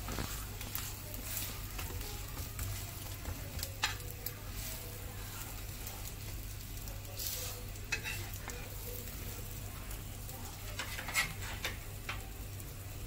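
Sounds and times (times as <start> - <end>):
spatula scraping a pan: 0.0 - 6.4, 7.1 - 9.4, 10.5 - 11.9
omelette sizzling in oil: 0.0 - 13.0.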